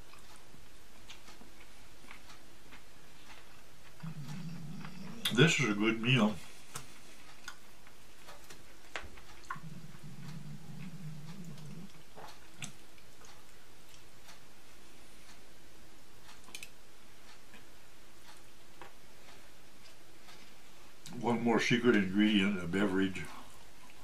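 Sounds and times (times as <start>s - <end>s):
low hum: 2.9s - 17.2s.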